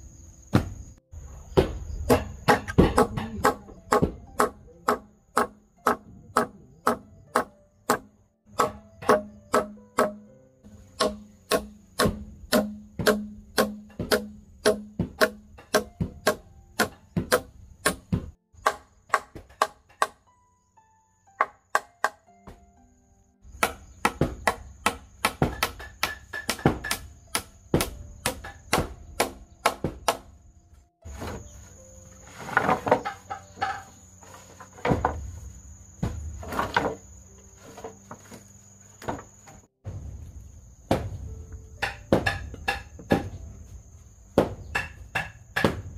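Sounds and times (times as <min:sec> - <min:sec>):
hammer striking nails: 0:02.1 - 0:10.3, 0:10.9 - 0:20.2, 0:23.5 - 0:30.3, 0:41.8 - 0:43.3, 0:44.4 - 0:45.8
high insect drone: 0:22.9 - 0:45.9.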